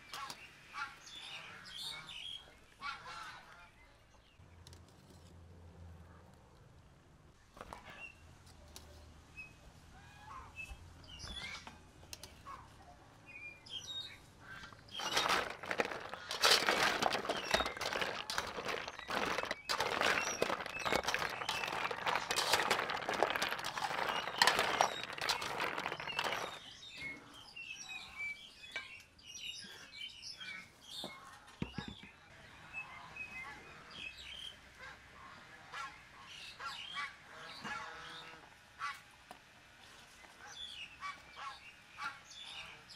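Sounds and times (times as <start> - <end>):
birds chirping: 13.3 - 34.6
ice cubes crackling and clinking: 14.9 - 26.7.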